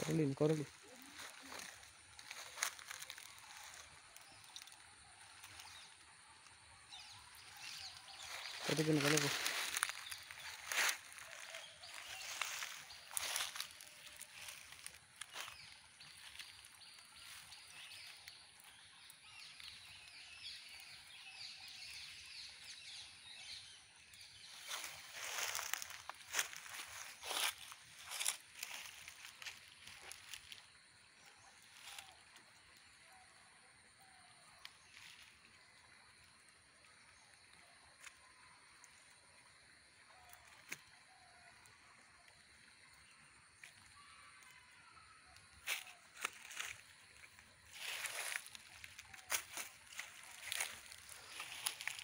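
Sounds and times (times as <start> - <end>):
net and grass rustling: 0.0 - 5.8, 7.5 - 18.3, 24.5 - 30.7, 45.6 - 52.0
birds calling: 0.0 - 30.7, 45.6 - 52.0
net and fish clicks and rustles: 1.2 - 5.7.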